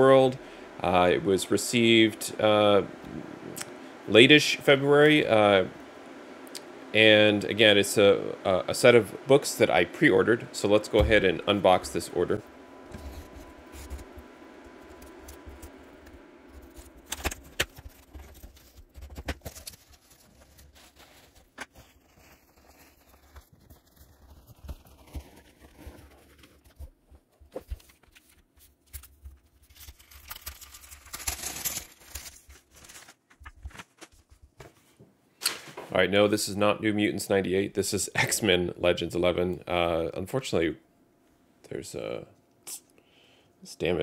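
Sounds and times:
packing peanuts rustling: 0:14.9 - 0:34.6.

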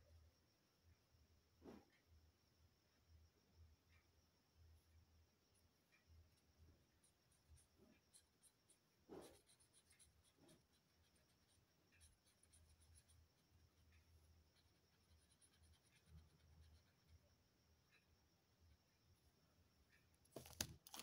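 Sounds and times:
pen scratching on paper: 0:06.8 - 0:17.2.

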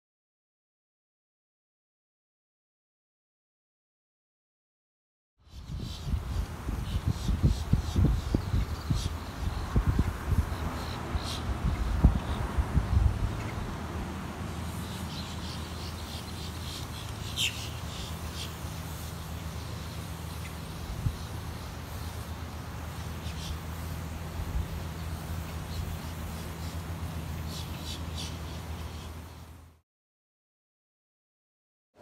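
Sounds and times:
low mechanical hum: 0:05.5 - 0:29.8.

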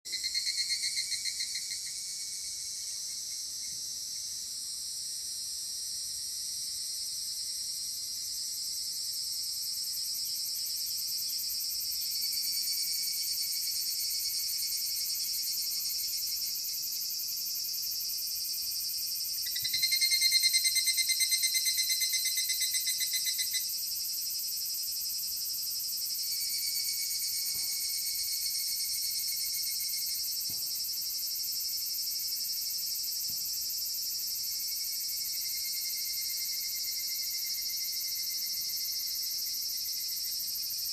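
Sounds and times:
cicadas pulsing trills: 0:00.1 - 0:40.9.

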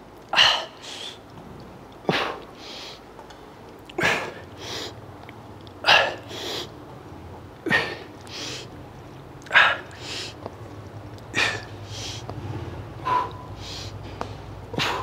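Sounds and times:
man exhaling sharply: 0:14.8 - 0:15.0.

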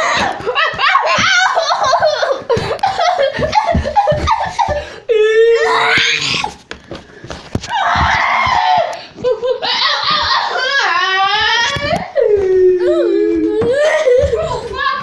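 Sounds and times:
child shrieking: 0:05.4 - 0:06.5
child laughing hard: 0:08.7 - 0:15.0.

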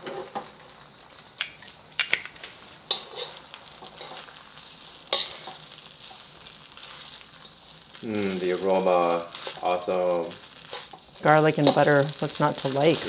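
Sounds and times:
butter sizzling softly in wok: 0:00.0 - 0:13.0
metal tongs clacking against wok: 0:01.4 - 0:04.2, 0:05.1 - 0:05.6, 0:11.6 - 0:11.9.

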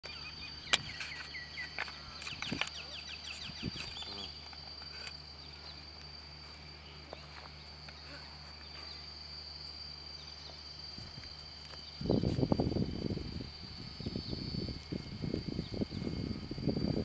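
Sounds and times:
birds chirping: 0:00.0 - 0:12.3
high-pitched whine: 0:00.0 - 0:17.0.

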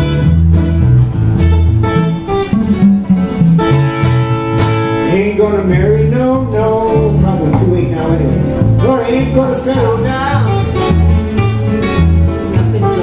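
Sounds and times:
acoustic guitar playing: 0:00.0 - 0:13.0.

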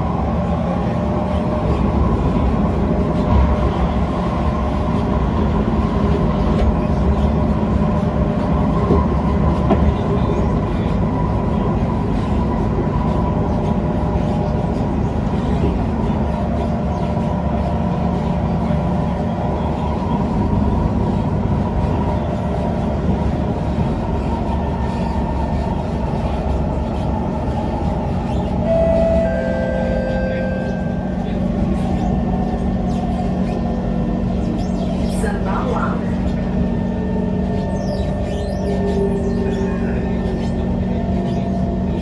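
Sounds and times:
passing train: 0:00.0 - 0:42.0
train running rumble: 0:00.0 - 0:42.0
train motor whine: 0:28.4 - 0:32.9.

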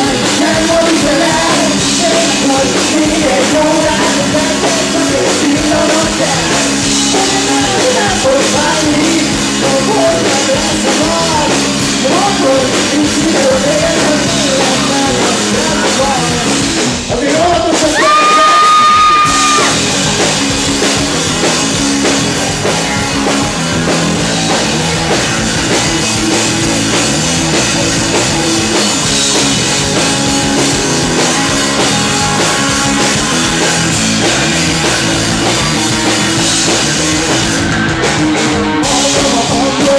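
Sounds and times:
person singing lead vocal: 0:00.0 - 0:20.0, 0:38.1 - 0:39.9
drum kit: 0:00.0 - 0:39.9
electric guitars: 0:00.0 - 0:39.9.

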